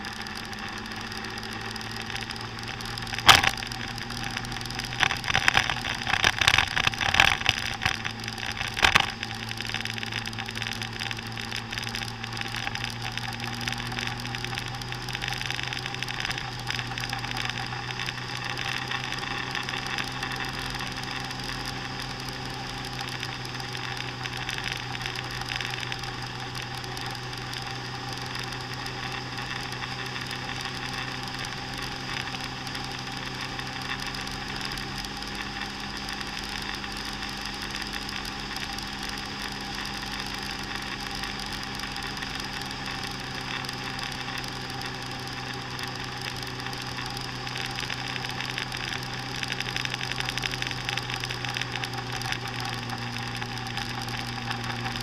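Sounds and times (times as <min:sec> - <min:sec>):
motor scooter engine droning: 0:00.0 - 0:55.0
wind and road noise: 0:00.0 - 0:55.0.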